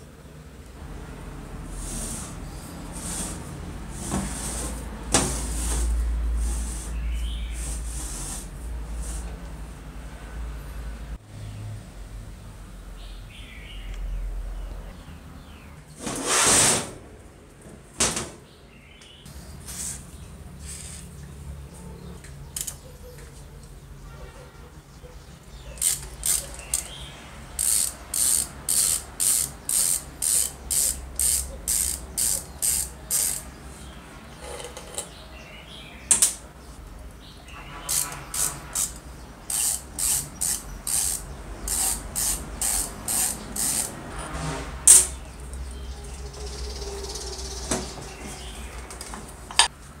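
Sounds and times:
screwdriver clicking and rasping: 25.8 - 26.9, 27.6 - 33.4, 37.9 - 44.0.

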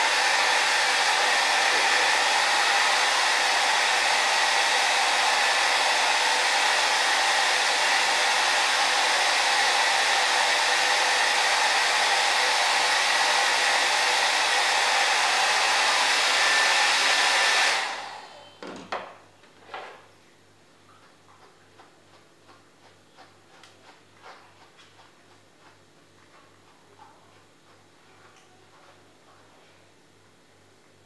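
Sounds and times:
hair dryer blowing: 0.0 - 18.5.

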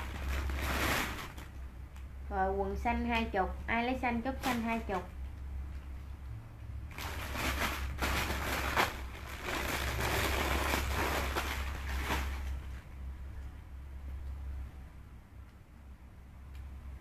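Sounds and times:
clothes rustling and crinkling: 0.0 - 1.6, 4.2 - 5.1, 6.9 - 12.9.

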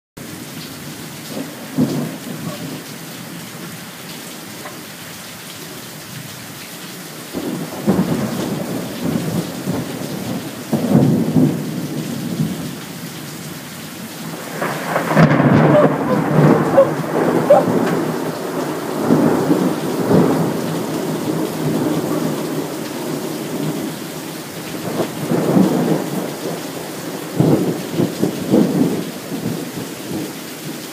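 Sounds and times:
heavy rain falling: 0.2 - 30.9
thunder rumbling: 1.2 - 3.8, 7.3 - 12.7, 14.2 - 30.3.

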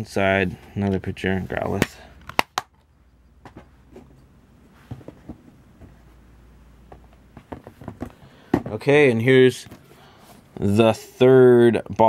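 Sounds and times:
low steady hum: 0.0 - 12.0
boxes being moved: 3.4 - 6.2, 6.8 - 10.8.

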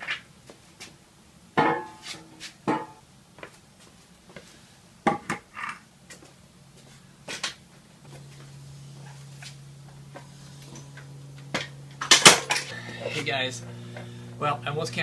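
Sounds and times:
faint low hum: 6.0 - 15.0.

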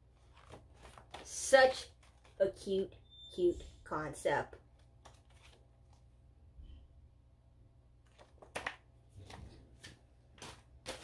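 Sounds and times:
packaging rustling: 0.2 - 1.3.

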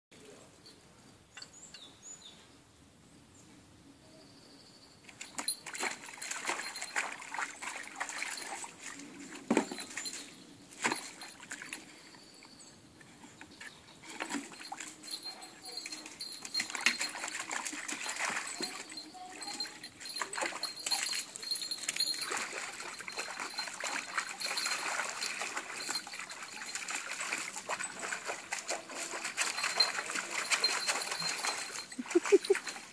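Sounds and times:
dog splashing in water: 5.2 - 11.8, 14.2 - 32.9.

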